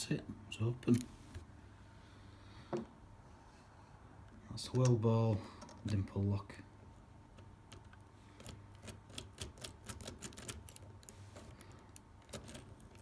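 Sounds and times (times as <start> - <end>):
lock pick clicking in lock: 7.4 - 11.1.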